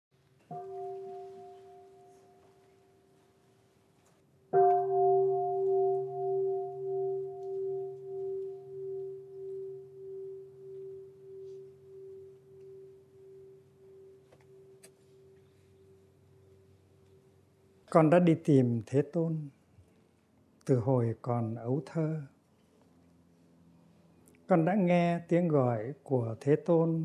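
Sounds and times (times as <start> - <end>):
bowl bell ringing: 0.5 - 3.2, 4.6 - 16.7.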